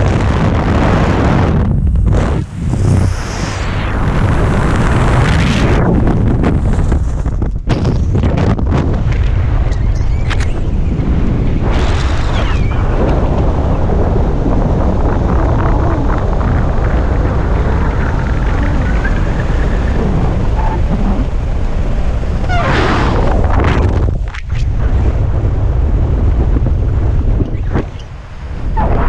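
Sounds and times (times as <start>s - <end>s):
wind buffeting microphone: 0.0s - 29.0s.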